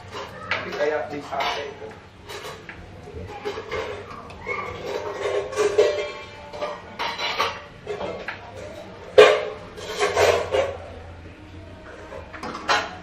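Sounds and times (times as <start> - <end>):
metal utensils clattering on pans: 0.0 - 11.1, 11.8 - 13.0.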